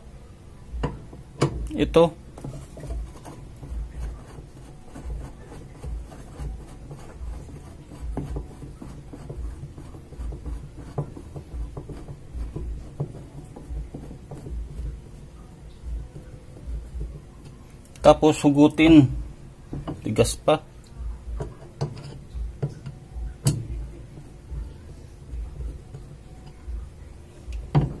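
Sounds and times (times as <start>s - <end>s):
screwdriver scraping and clicking: 2.4s - 14.6s, 21.4s - 23.6s.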